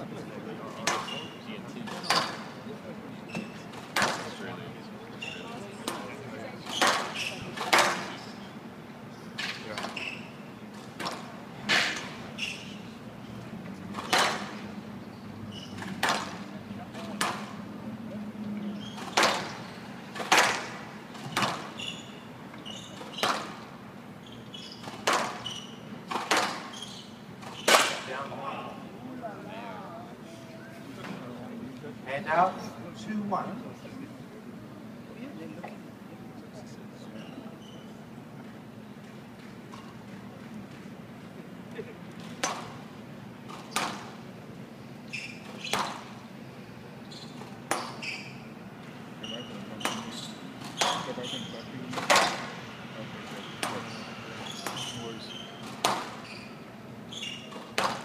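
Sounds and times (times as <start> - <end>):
shoe squeaks on court floor: 0.9 - 2.5, 3.3 - 3.7, 5.1 - 5.6, 6.7 - 8.3, 9.4 - 10.5, 11.7 - 13.0, 15.5 - 16.2, 18.7 - 20.0, 21.3 - 23.6, 24.2 - 28.0, 37.1 - 38.1, 45.0 - 46.2, 47.0 - 48.5, 49.1 - 52.4, 53.4 - 58.0
squash ball sharp cracks: 14.0 - 14.6, 20.2 - 21.7, 24.9 - 25.4, 27.6 - 28.1, 51.9 - 52.5
squash ball cracks: 20.2 - 20.8.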